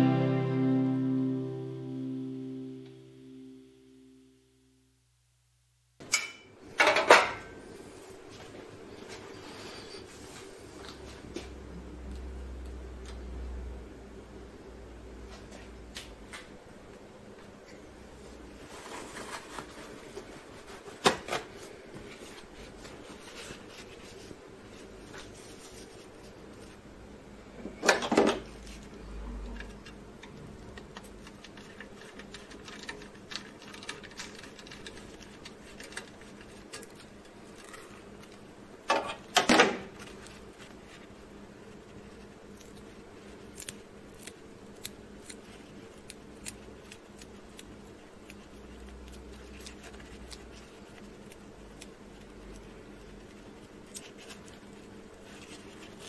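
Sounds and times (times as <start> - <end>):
paper towel rustling: 18.2 - 26.8
small clicks and light scrapes: 28.6 - 38.4.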